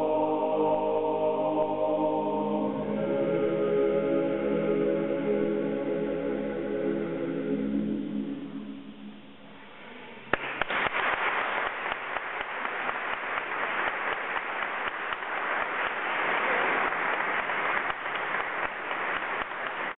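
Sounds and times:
audience applause: 0:10.4 - 0:19.9.

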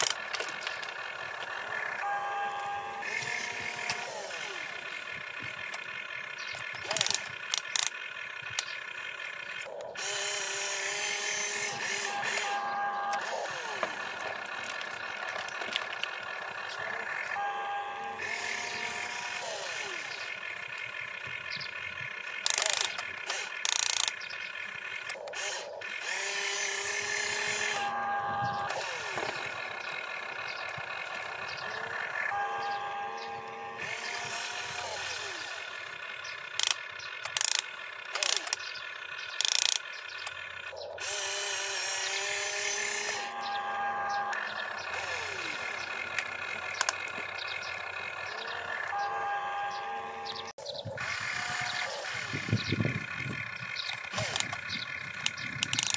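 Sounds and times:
sharp clicks: 0:00.0 - 0:01.8, 0:02.5 - 0:10.4, 0:18.2 - 0:27.9, 0:33.2 - 0:43.5, 0:44.2 - 0:49.0, 0:53.6 - 0:55.9
model excavator motor whine: 0:00.0 - 0:55.9.

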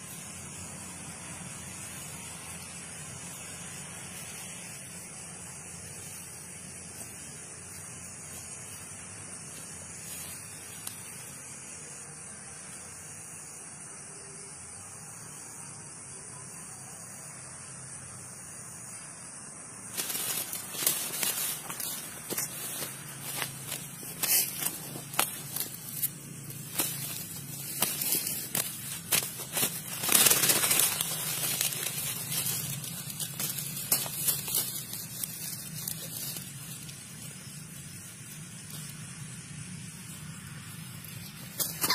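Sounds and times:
footsteps through dry grass: 0:00.0 - 0:11.2, 0:19.9 - 0:39.1, 0:41.1 - 0:41.9
steady high hiss: 0:00.0 - 0:41.9.

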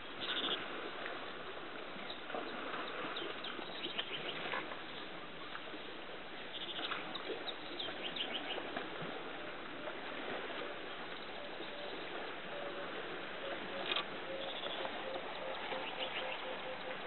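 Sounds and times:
outdoor background noise: 0:00.0 - 0:17.0
birds chirping: 0:10.9 - 0:17.0.

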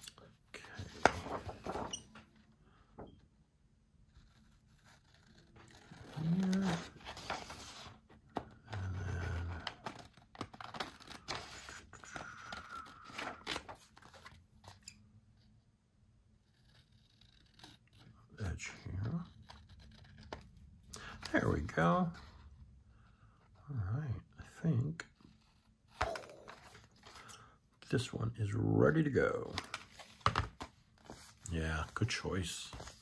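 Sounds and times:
paper rustling: 0:00.6 - 0:02.5, 0:04.2 - 0:14.9, 0:25.2 - 0:27.3, 0:29.4 - 0:33.0.

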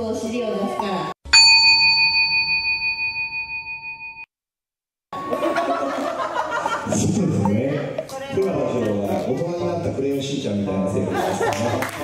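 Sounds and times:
bell-like chime: 0:01.3 - 0:04.3.

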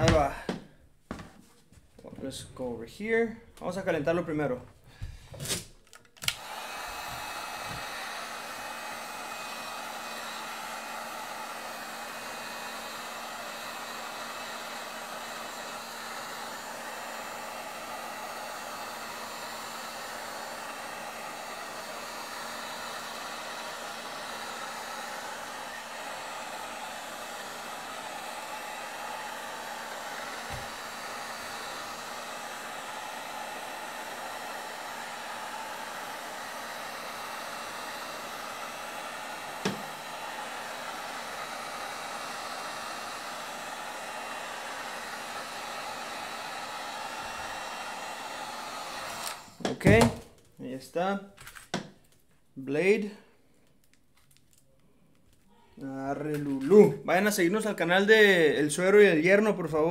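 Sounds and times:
heat gun blowing: 0:04.9 - 0:50.3.

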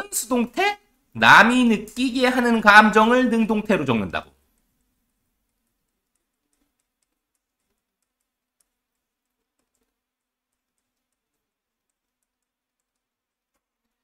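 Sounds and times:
stylus tapping on tablet: 0:04.4 - 0:14.0.

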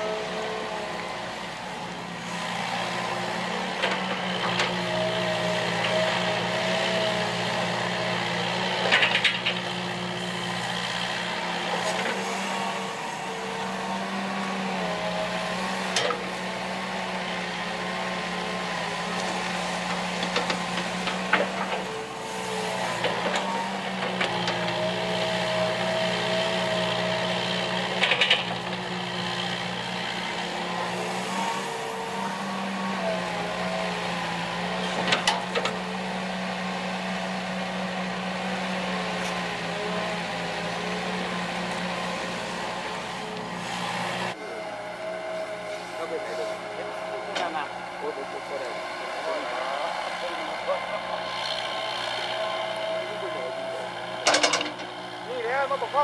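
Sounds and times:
excavator diesel engine running: 0:00.0 - 0:56.0
hydraulic whine: 0:00.0 - 0:56.0
metallic clanks: 0:54.2 - 0:54.9.

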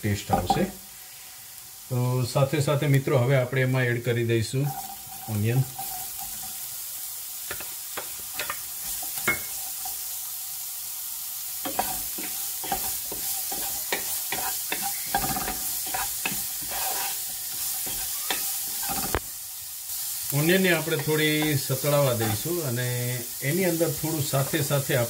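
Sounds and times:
onion sizzling in oil: 0:00.0 - 0:25.0
spatula scraping and tapping pan: 0:00.3 - 0:00.8, 0:04.7 - 0:06.6, 0:07.4 - 0:10.0, 0:11.6 - 0:19.3, 0:20.6 - 0:22.6.

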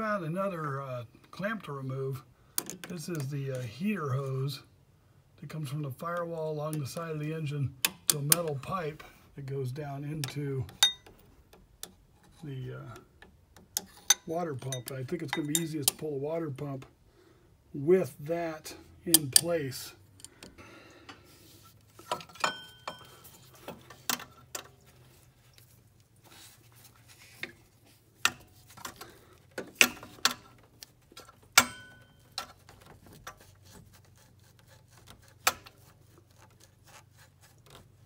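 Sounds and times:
metal tools clinking: 0:13.8 - 0:16.0, 0:22.0 - 0:24.8, 0:28.2 - 0:32.8.

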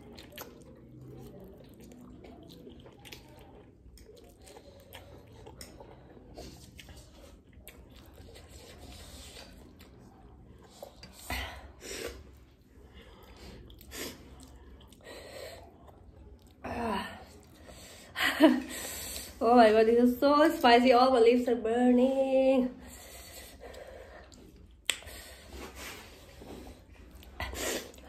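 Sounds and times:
chewing and mouth noises: 0:00.0 - 0:18.0, 0:22.8 - 0:28.0.

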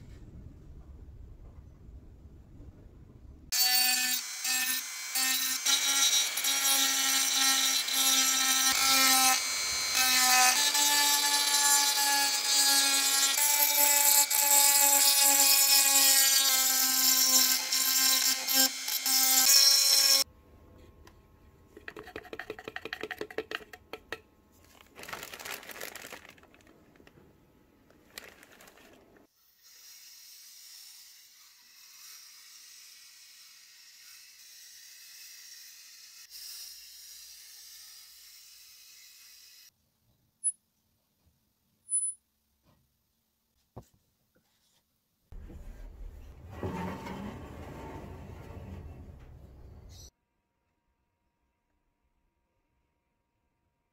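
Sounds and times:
rotary tool grinding metal: 0:03.6 - 0:20.2.

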